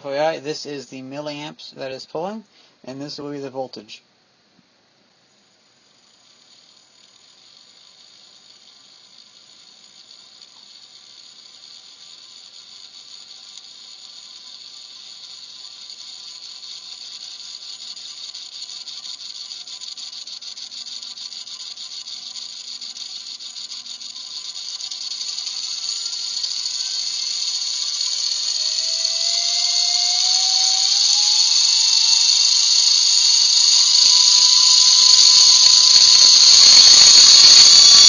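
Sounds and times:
small geared motor whirring: 0:18.6 - 0:38.0.

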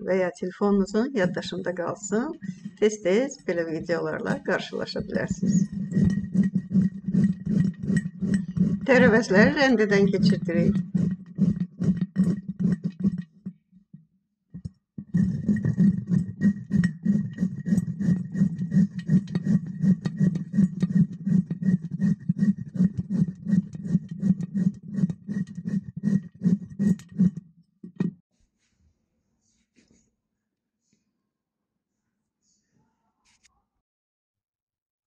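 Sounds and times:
vegetables grated on metal grater: 0:01.1 - 0:13.3, 0:15.0 - 0:27.4.

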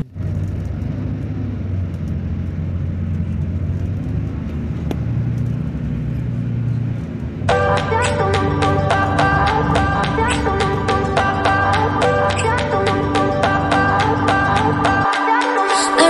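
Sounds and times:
bus engine rumbling: 0:00.0 - 0:15.1.

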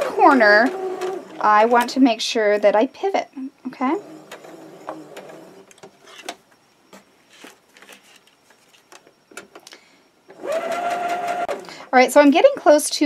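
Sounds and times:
sewing machine motor whine: 0:00.0 - 0:02.8, 0:03.6 - 0:06.2, 0:10.3 - 0:11.9.

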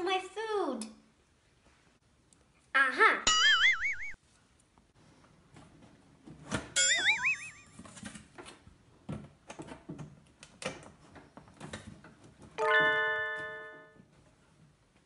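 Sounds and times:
bright chime: 0:06.8 - 0:07.8, 0:12.6 - 0:13.9.

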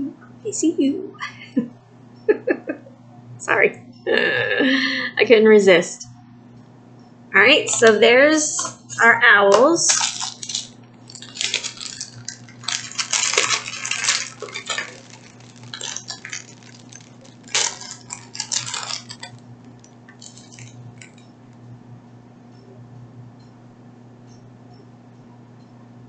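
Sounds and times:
hard plastic pieces clicking: 0:09.5 - 0:21.2
plastic packet crinkling: 0:09.5 - 0:21.3.

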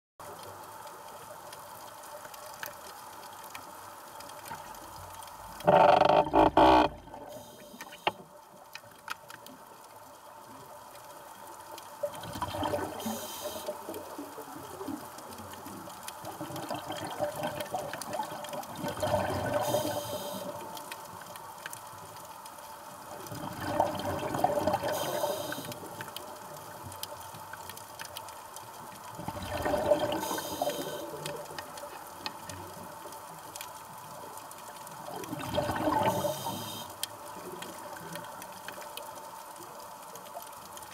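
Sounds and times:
low water hiss: 0:00.2 - 0:40.9
exhaled bubbles underwater: 0:12.1 - 0:20.8, 0:23.1 - 0:26.0, 0:29.1 - 0:31.7, 0:35.0 - 0:36.8.

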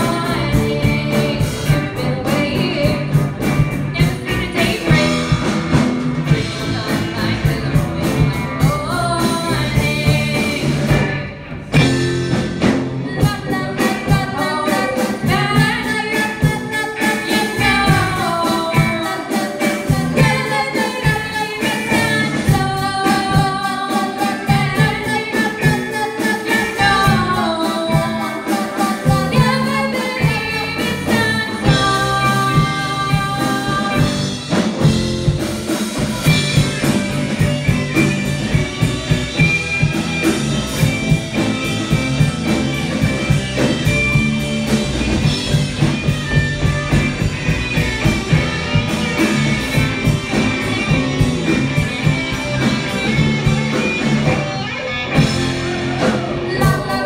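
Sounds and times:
person singing lead vocal: 0:00.0 - 0:12.0, 0:12.6 - 0:34.9, 0:55.0 - 0:57.0
bass guitar: 0:00.0 - 0:57.0
drum kit: 0:00.0 - 0:57.0
electric guitars: 0:00.0 - 0:57.0
keyboard: 0:00.0 - 0:57.0.

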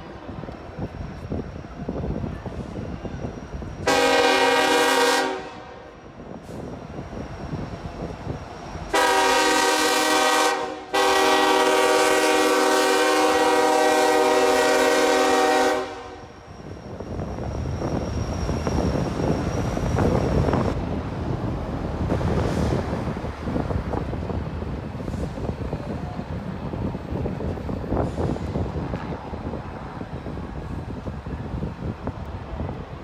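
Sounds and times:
train rolling rumble: 0:00.0 - 0:33.0
locomotive horn blasts: 0:03.8 - 0:05.8, 0:08.9 - 0:16.2.

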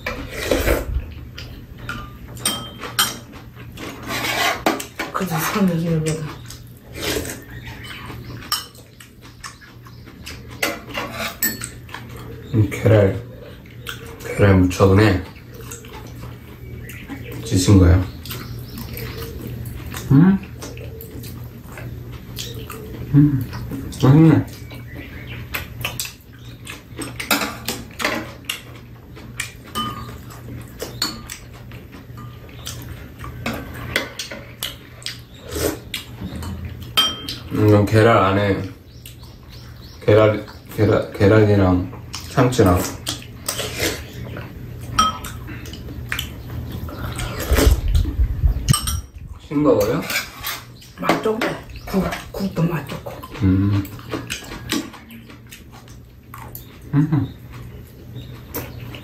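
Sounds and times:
low steady hum: 0:00.0 - 0:59.0
utensils clinking on ceramic bowls: 0:01.8 - 0:06.5, 0:08.0 - 0:08.9, 0:10.6 - 0:12.3, 0:27.0 - 0:28.7, 0:29.4 - 0:34.6, 0:36.3 - 0:37.8, 0:44.8 - 0:45.8, 0:48.7 - 0:53.4.

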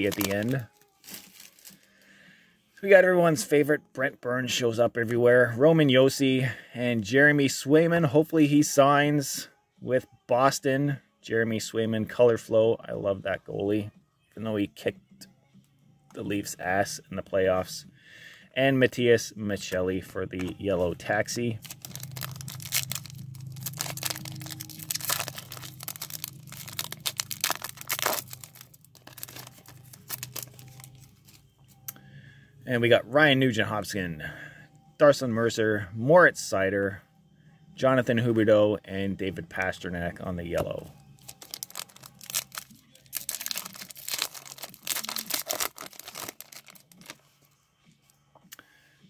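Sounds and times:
foil wrapper crinkling: 0:00.0 - 0:01.9, 0:21.6 - 0:31.4, 0:41.2 - 0:47.2
low steady hum: 0:19.8 - 0:36.2.

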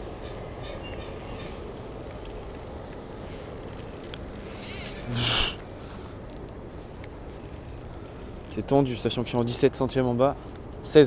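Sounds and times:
fishing reel drag clicking: 0:01.0 - 0:08.8
reel rasp: 0:01.1 - 0:05.9.

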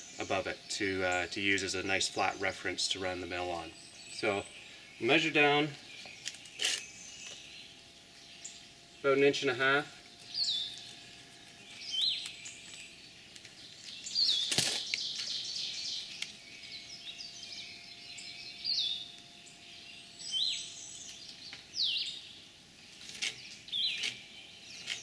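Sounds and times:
birds whistling: 0:00.0 - 0:25.0.

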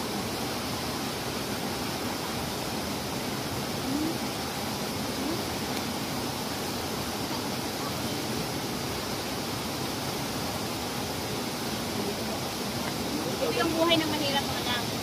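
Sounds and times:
river rushing over rocks: 0:00.0 - 0:15.0
faint voices: 0:03.8 - 0:04.4, 0:06.6 - 0:08.7, 0:11.7 - 0:15.0.

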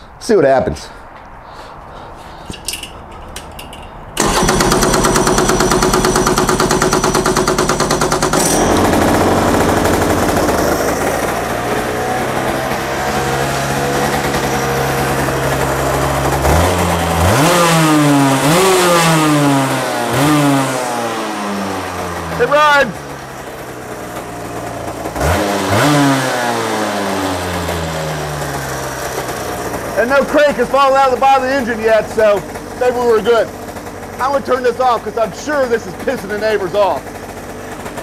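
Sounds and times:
kart engine running and revving: 0:04.2 - 0:38.0.

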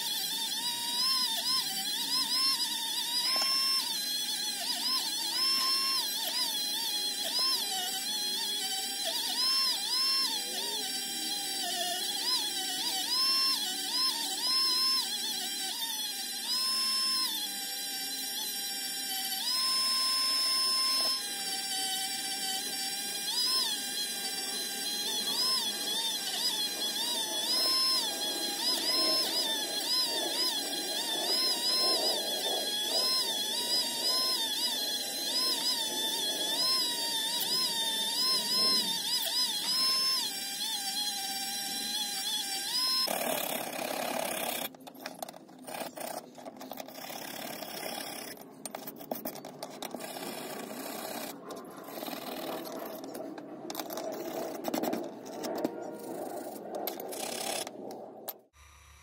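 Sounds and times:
rotary tool whining on metal: 0:00.0 - 0:59.0
wire brush scrubbing metal: 0:21.3 - 0:58.0.

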